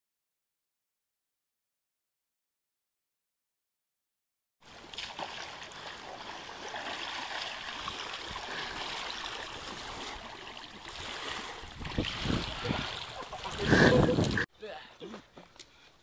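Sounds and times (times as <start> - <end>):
water sloshing and splashing: 4.6 - 14.5.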